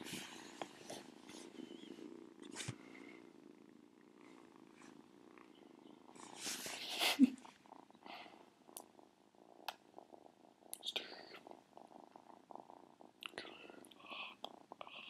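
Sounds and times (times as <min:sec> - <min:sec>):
cat purring: 0:00.0 - 0:15.0
rustle: 0:06.1 - 0:07.6.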